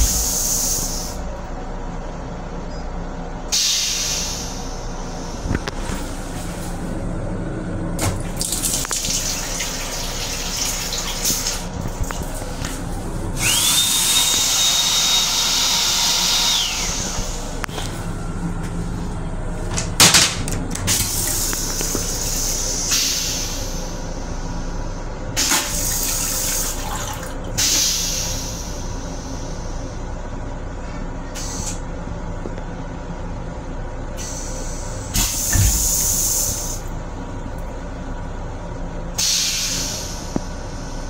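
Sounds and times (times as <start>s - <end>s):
steady low rumble: 0.0s - 9.5s, 11.6s - 13.6s, 16.8s - 25.4s.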